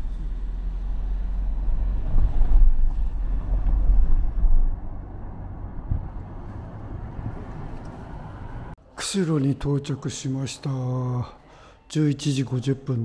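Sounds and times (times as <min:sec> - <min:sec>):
car road noise: 0:00.0 - 0:08.8
wind buffeting microphone: 0:01.8 - 0:08.7.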